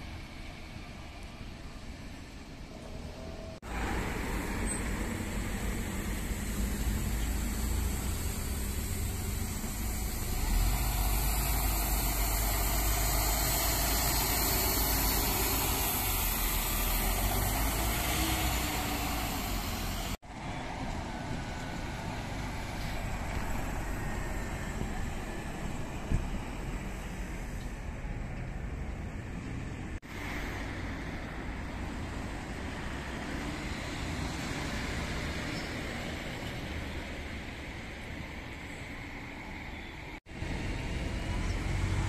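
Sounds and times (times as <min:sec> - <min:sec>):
bus engine rumbling past: 0:00.0 - 0:42.0.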